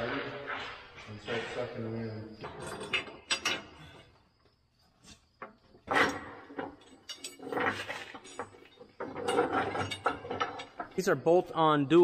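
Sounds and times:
metal rods clanking on wheel rim: 2.4s - 4.0s, 5.4s - 11.2s.

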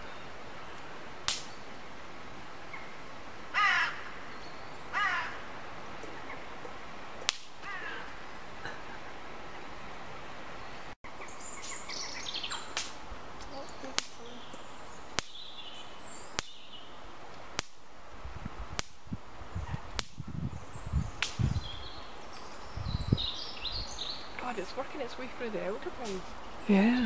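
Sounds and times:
faint bird chirps: 10.6s - 12.8s.

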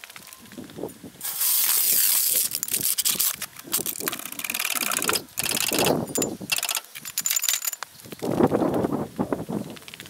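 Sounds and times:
trolley jack rattling over gravel: 1.2s - 7.8s.

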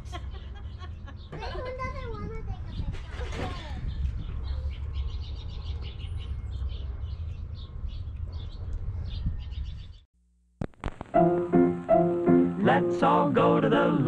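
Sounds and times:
small birds chirping: 0.3s - 10.1s
clicks: 10.6s - 11.2s
music: 11.1s - 14.0s.

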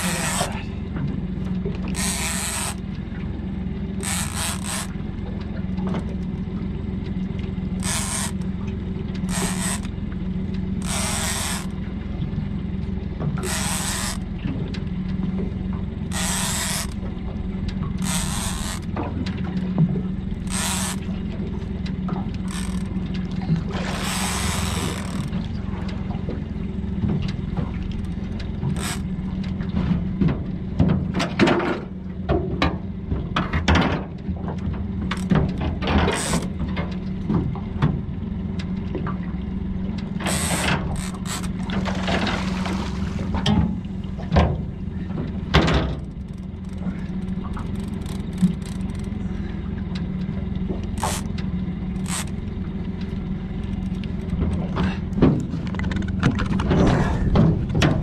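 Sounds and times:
fishing reel bursts: 0.0s - 0.6s, 1.9s - 2.8s, 4.0s - 4.9s, 7.8s - 8.4s, 9.3s - 9.9s, 10.8s - 11.7s, 13.4s - 14.2s, 16.1s - 17.0s, 18.0s - 18.8s, 20.4s - 21.1s, 22.5s - 22.9s, 23.9s - 25.3s, 28.8s - 29.1s, 40.2s - 41.5s, 51.0s - 51.3s, 52.0s - 52.3s
steady low hum: 0.0s - 58.0s.

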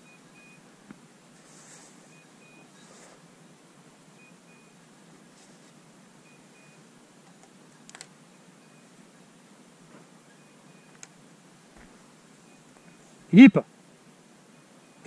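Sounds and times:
rustling through brush: 1.3s - 3.3s, 5.0s - 5.9s
sharp clicks: 7.2s - 8.1s.

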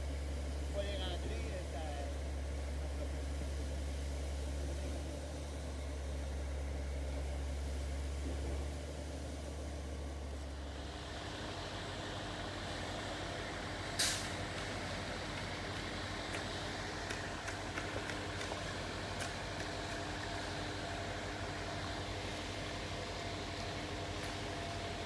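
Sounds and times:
pump engine drone: 0.0s - 25.0s
sharp hiss of air: 14.0s - 14.4s.

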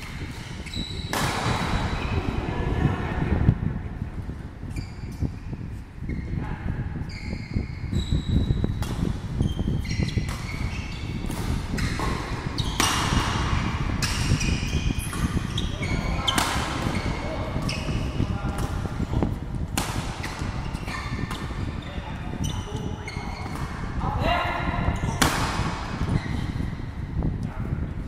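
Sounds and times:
rackets hitting shuttlecock: 0.0s - 2.0s, 10.0s - 21.8s, 25.1s - 26.2s
sneakers squeaking on court floor: 0.0s - 2.3s, 4.6s - 6.4s, 7.0s - 24.0s, 24.9s - 27.0s.

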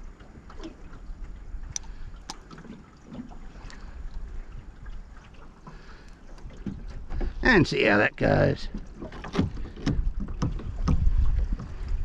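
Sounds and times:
wind rumble on microphone: 3.2s - 5.4s, 8.6s - 12.0s.

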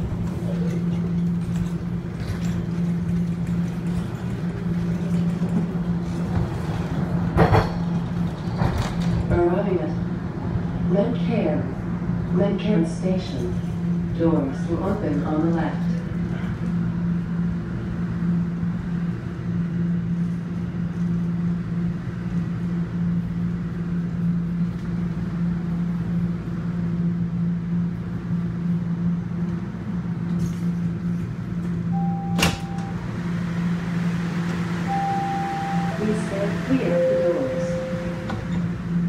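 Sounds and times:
constant rush of noise: 0.0s - 39.0s
subway car equipment hum: 0.0s - 39.0s
short high beep: 34.9s - 38.5s.

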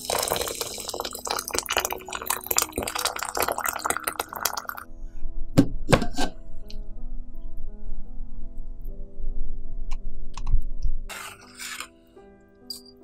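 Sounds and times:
water pouring into a steel pot: 0.0s - 4.8s
faint background music: 0.0s - 13.0s.

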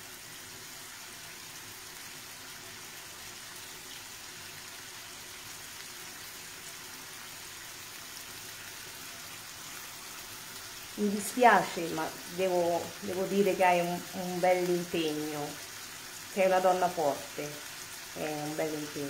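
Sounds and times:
faint sizzle in a skillet: 0.0s - 19.0s.

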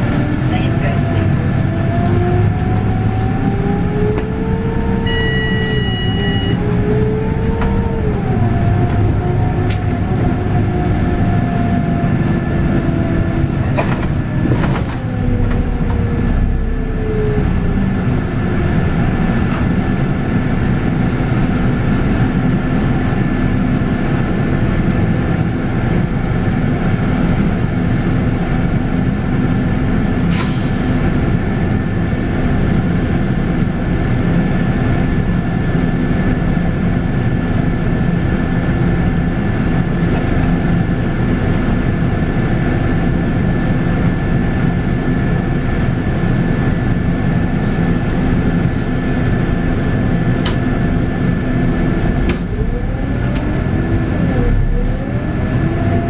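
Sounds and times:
steady high whine: 0.0s - 30.2s, 30.9s - 56.0s
bus diesel engine running: 0.0s - 56.0s
tone falling in pitch: 4.7s - 8.0s.

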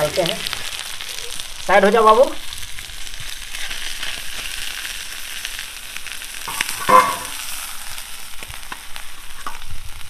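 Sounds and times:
fish sizzling in oil: 0.0s - 10.0s.

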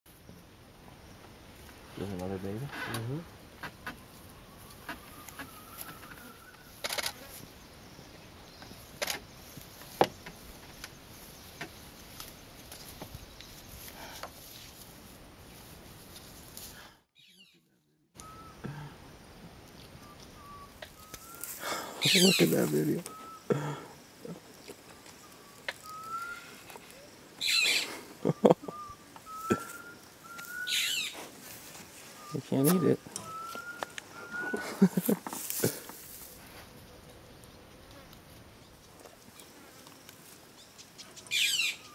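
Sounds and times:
thin rising whistled call: 4.0s - 6.7s, 18.2s - 18.6s, 20.0s - 23.5s, 24.8s - 31.2s, 32.0s - 35.0s, 41.2s - 41.9s
faint thin whistle: 18.2s - 18.5s, 32.2s - 34.6s
hyena cub snuffling: 25.7s - 36.9s.

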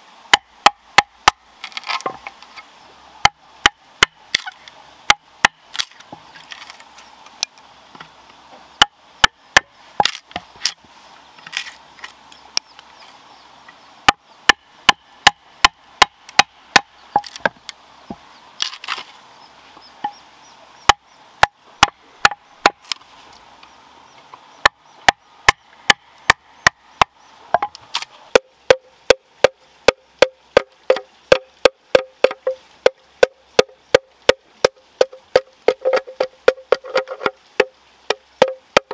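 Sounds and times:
hollow ringing strikes on bamboo: 0.3s - 1.4s, 5.1s - 5.9s, 14.1s - 17.6s, 20.9s - 22.8s, 24.6s - 38.9s.

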